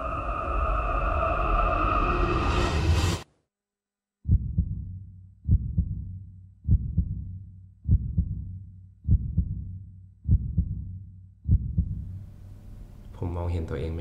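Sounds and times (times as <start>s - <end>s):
low hum: 0.0s - 3.2s
heartbeat thumps: 4.2s - 12.3s.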